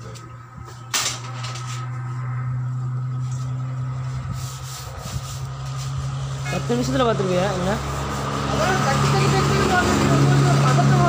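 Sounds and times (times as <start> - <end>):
hands rubbing rubber inner tube: 4.3 - 6.1.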